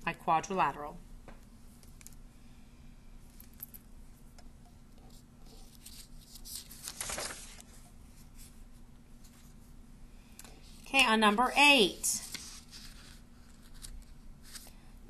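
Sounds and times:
faint steady hum: 0.0 - 15.0
paper rustling and tapping: 5.7 - 7.8.

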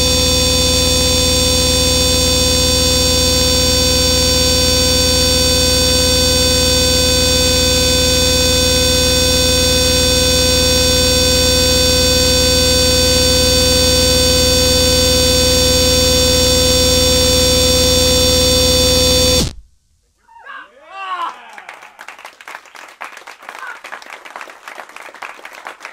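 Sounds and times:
low buzzing flutter: 0.0 - 19.6
synthesizer noise drone: 0.0 - 19.7.

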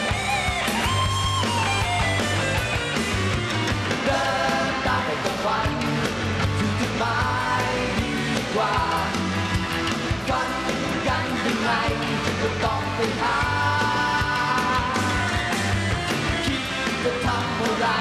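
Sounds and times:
pop-rock band playing: 0.0 - 18.0
male lead vocal: 3.9 - 18.0.

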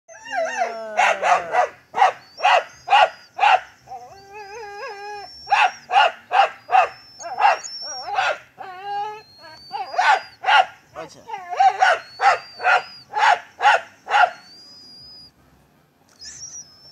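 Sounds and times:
dog whining: 0.1 - 3.3, 3.9 - 13.3, 16.1 - 16.9
dog barking: 1.0 - 3.7, 5.5 - 8.4, 9.8 - 14.5.

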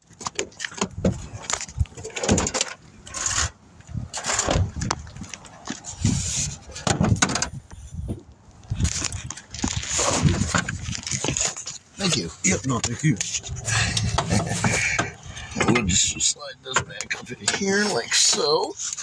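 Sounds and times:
metal parts scraping and knocking: 0.3 - 4.9.

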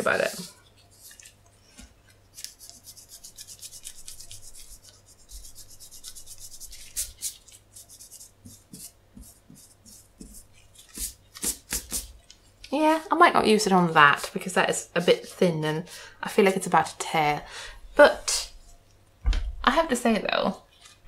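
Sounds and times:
eraser scrubbing on paper: 2.4 - 12.1, 13.6 - 15.6.

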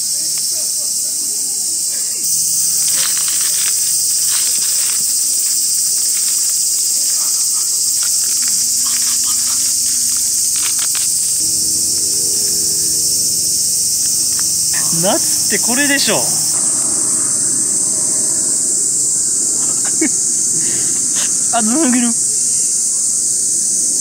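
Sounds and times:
cicadas droning: 0.0 - 24.0
corn husks rustling and crackling: 2.2 - 16.4.

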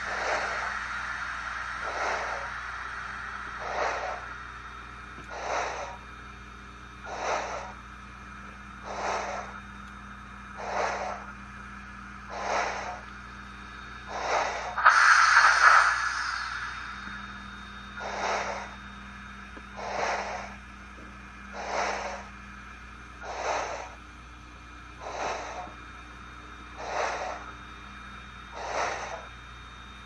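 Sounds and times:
steam hiss: 0.0 - 6.1, 7.0 - 7.8, 8.8 - 9.6, 10.6 - 11.3, 12.3 - 13.1, 14.0 - 20.6, 21.5 - 22.3, 23.2 - 24.0, 25.0 - 25.7, 26.8 - 27.5, 28.5 - 29.3
steam locomotive chuffs: 0.0 - 6.1, 7.0 - 7.8, 8.8 - 9.6, 10.6 - 11.3, 12.3 - 13.1, 14.0 - 20.6, 21.5 - 22.3, 23.2 - 24.0, 25.0 - 25.8, 26.8 - 27.5, 28.5 - 29.3
steady low hum: 0.0 - 30.0.

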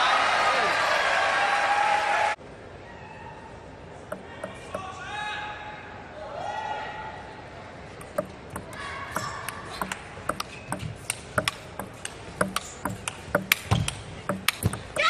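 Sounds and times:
table tennis ball clicking: 4.1 - 4.9, 8.0 - 15.0.

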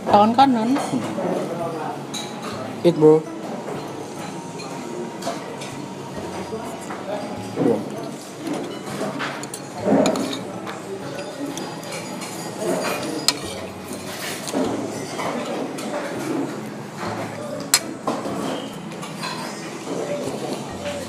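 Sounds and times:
murmur of dining room: 0.0 - 21.0
cutlery clinking on plate: 6.8 - 20.7.

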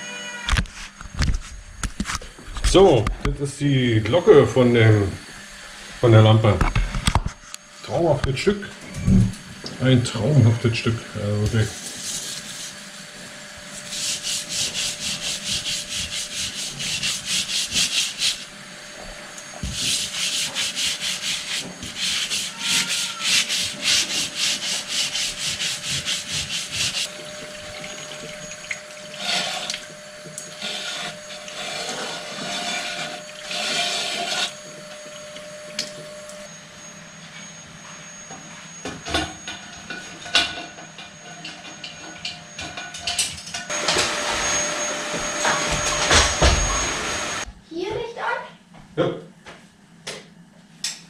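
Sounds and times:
brush scrubbing glass: 11.5 - 18.5, 19.6 - 27.1, 30.5 - 34.6
hand rubbing glass: 13.7 - 18.5, 19.6 - 27.1.

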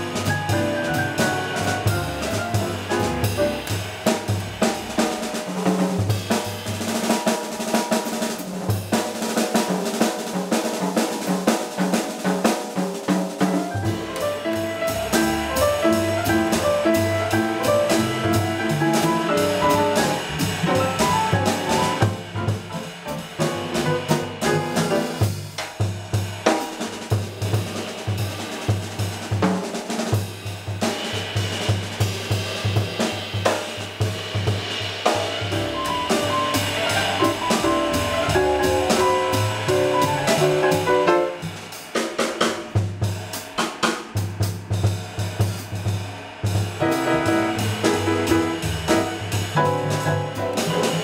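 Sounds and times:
upright bass: 0.0 - 3.8, 13.8 - 25.2, 35.5 - 40.9, 46.8 - 51.0
cymbal and snare drums: 0.0 - 51.0
jazz piano: 0.0 - 51.0.

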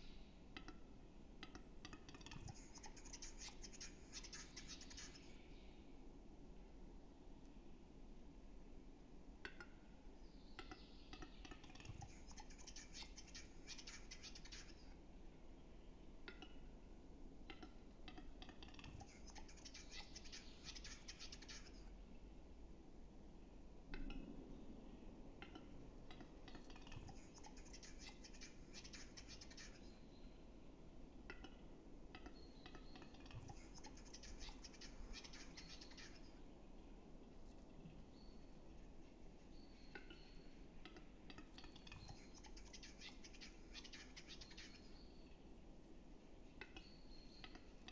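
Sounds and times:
bird display clicks: 1.4 - 5.2, 17.5 - 21.6.

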